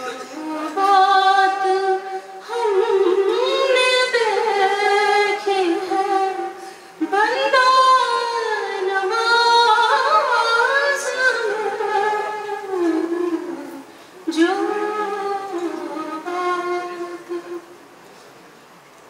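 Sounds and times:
woman singing: 0.3s - 17.8s
singer breathing: 2.1s - 2.4s, 6.6s - 7.0s, 13.8s - 14.3s.

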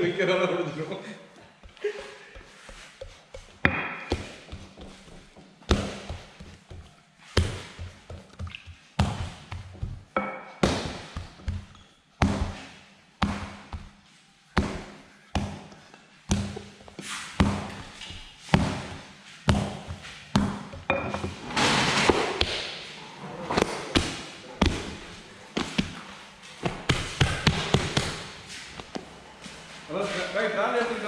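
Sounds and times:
scraping noise: 21.3s - 23.9s.

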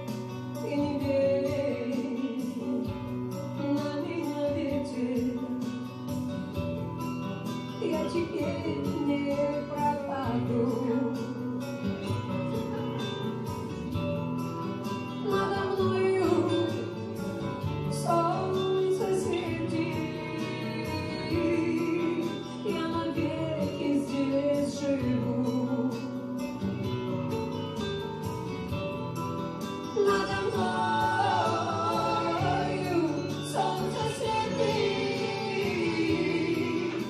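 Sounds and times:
backing track with guitar: 0.0s - 37.0s
woman singing into a microphone: 0.5s - 6.0s, 7.7s - 11.7s, 15.2s - 17.2s, 17.8s - 27.0s, 29.9s - 37.0s.

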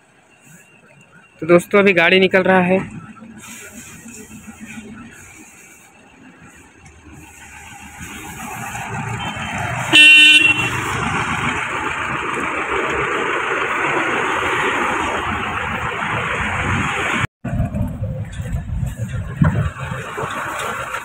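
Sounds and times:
pickup engine passing by: 2.8s - 21.0s
short horn toot: 9.2s - 10.8s.

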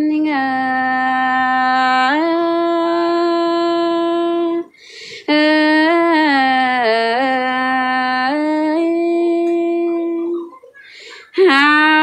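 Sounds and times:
woman singing folk song: 0.0s - 10.2s.

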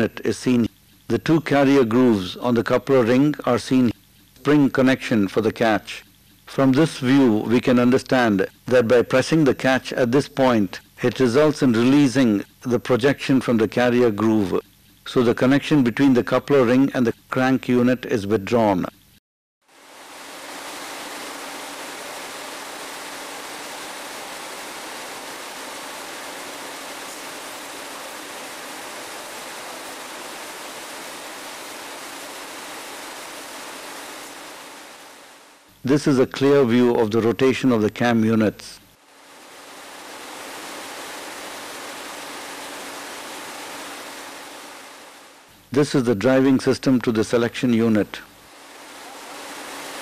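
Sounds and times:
steady hiss: 0.0s - 17.9s, 19.7s - 50.0s
faint low hum: 19.9s - 50.0s.

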